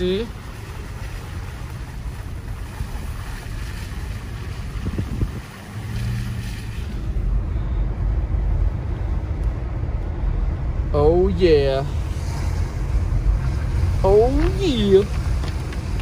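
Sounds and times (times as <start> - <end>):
tyres on wet road: 0.0 - 16.0
wind rushing through windows: 0.0 - 16.0.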